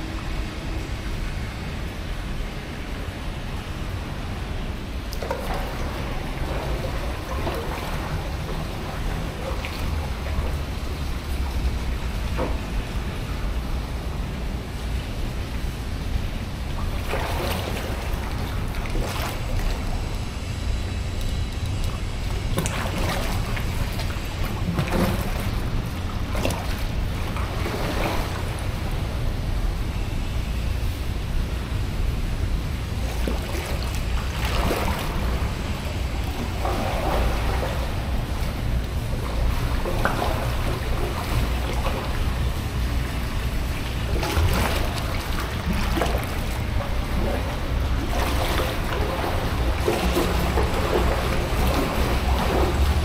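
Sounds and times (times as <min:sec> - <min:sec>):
paddle splashing in water: 0:05.0 - 0:13.9, 0:16.6 - 0:20.5, 0:21.2 - 0:29.2, 0:32.9 - 0:53.0.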